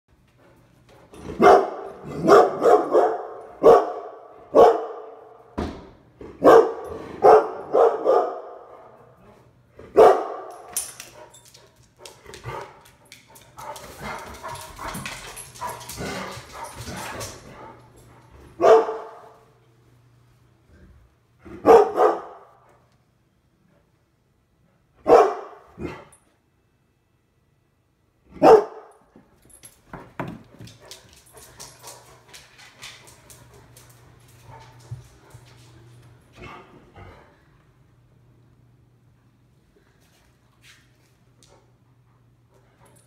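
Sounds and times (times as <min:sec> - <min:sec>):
dog barking: 0:01.4 - 0:05.3, 0:06.4 - 0:09.0, 0:09.9 - 0:10.6, 0:18.6 - 0:19.3, 0:21.5 - 0:22.6, 0:25.0 - 0:26.1, 0:28.3 - 0:29.0.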